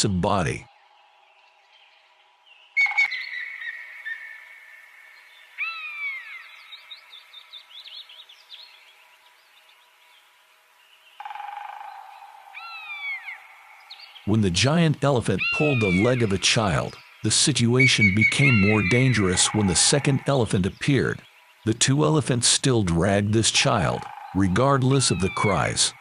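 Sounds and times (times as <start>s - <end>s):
birds chirping: 0.0s - 26.0s
steady high background noise: 3.0s - 26.0s
loud bird call falling tone: 15.2s - 21.2s.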